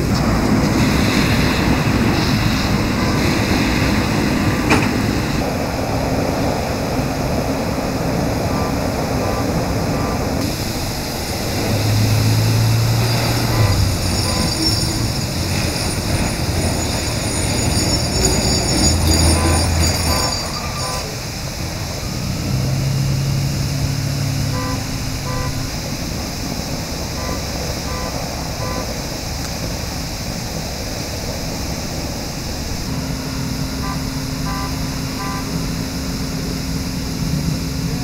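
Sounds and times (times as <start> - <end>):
idling vehicles humming: 0.0 - 38.0
water spraying from hydrant: 0.0 - 38.0
short electronic beeps: 13.0 - 15.3, 17.3 - 21.2, 24.4 - 25.8, 27.2 - 29.0, 32.9 - 36.1.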